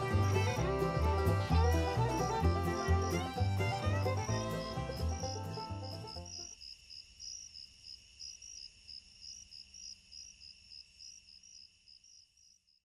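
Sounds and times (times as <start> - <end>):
crickets chirping: 4.2 - 12.8.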